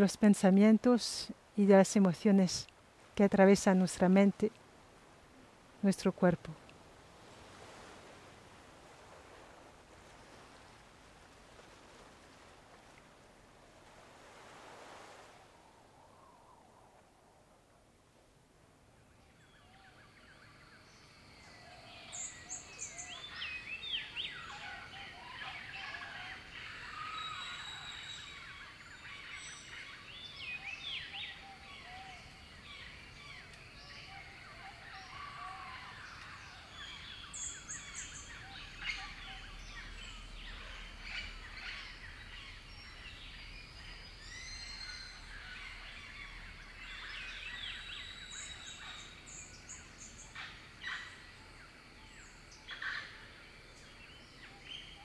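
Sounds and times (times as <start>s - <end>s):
jungle birds calling: 19.1s - 55.0s.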